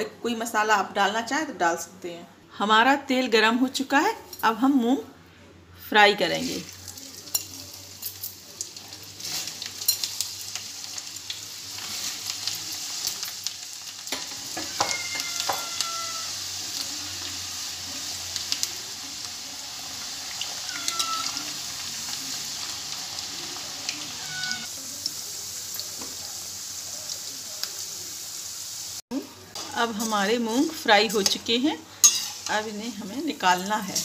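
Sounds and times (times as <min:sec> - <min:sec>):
beans sizzling in hot oil: 0:06.3 - 0:34.0
ladle stirring against pan: 0:29.6 - 0:32.6.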